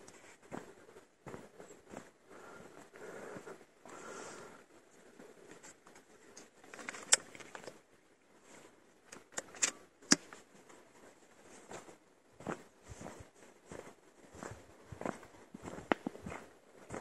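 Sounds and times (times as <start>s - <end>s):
rifle bolt metallic clicks: 9.1s - 10.3s.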